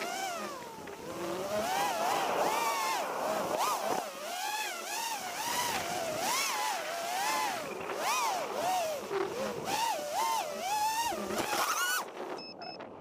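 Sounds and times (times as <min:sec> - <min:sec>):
steady rushing noise: 0:00.0 - 0:12.2
drone motors and propellers whining: 0:00.0 - 0:13.0.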